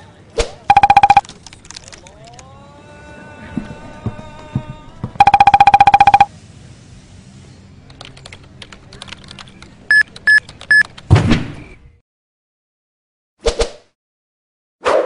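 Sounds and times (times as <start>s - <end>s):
rapid buzzing beeps: 0.7s - 1.2s, 5.2s - 6.3s
short high beeps: 0.7s - 1.2s, 5.2s - 6.3s
keyboard typing clicks: 0.7s - 2.0s.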